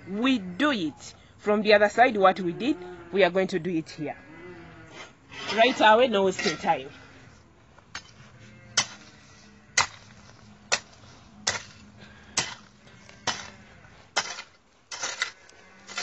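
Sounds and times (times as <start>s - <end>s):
hoe chopping into soil: 7.9s - 16.0s.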